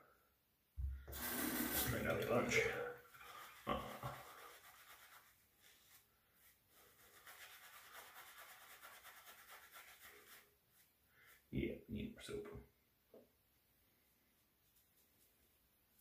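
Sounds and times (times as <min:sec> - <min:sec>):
shaving brush bristles swishing: 0:01.2 - 0:11.5.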